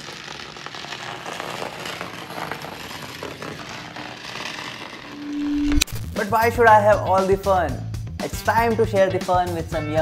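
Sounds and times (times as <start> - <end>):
toy electric train crackling rattle: 0.0 - 5.2.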